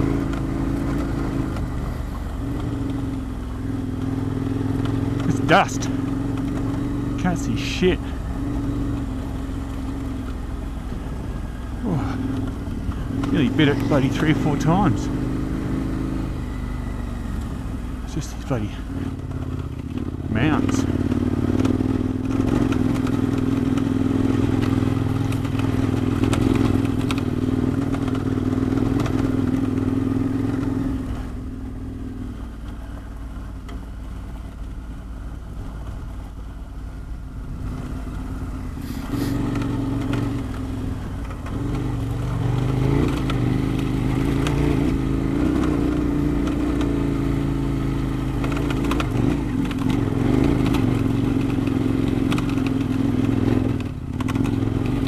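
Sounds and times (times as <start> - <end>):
motorcycle engine revving: 0.0 - 55.0
gravel clatter: 18.1 - 31.3, 37.6 - 55.0.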